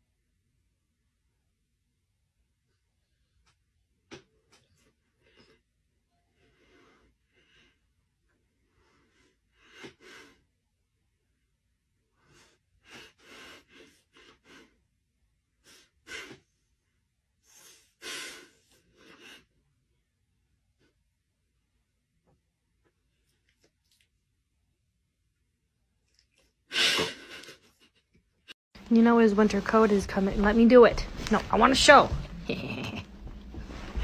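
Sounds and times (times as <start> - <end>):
breathy sniffs and snorts: 8.9 - 10.4, 15.6 - 16.6, 17.4 - 19.5.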